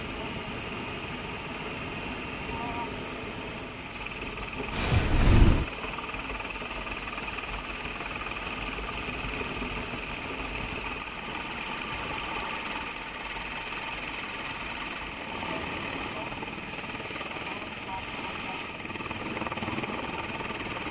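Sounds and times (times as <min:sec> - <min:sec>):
low thump: 0:04.8 - 0:05.7
helicopter engine and rotor: 0:14.4 - 0:20.9.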